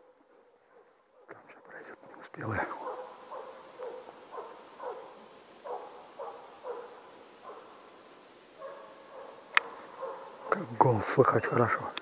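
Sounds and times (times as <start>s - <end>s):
hound yelping: 2.7s - 7.8s, 8.6s - 10.6s.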